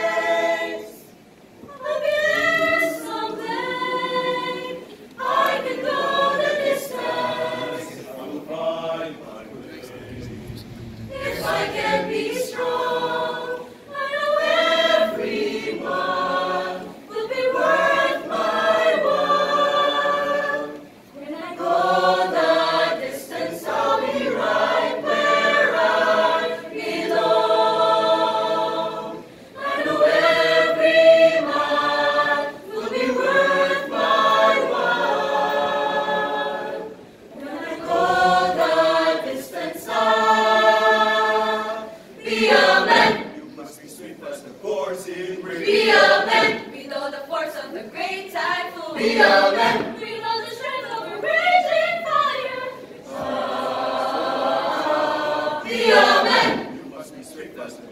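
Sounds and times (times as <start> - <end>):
choir singing a cappella: 0.0 - 57.9.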